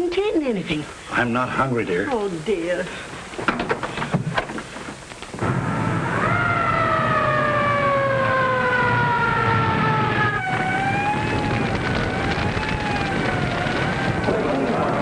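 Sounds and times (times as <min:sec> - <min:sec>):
fire engine sirens wailing: 0:05.4 - 0:15.0.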